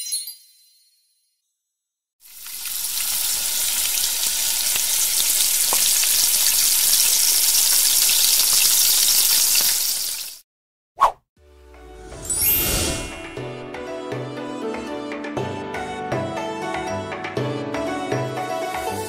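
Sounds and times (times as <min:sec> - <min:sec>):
oil sizzling and crackling: 0:02.2 - 0:10.4.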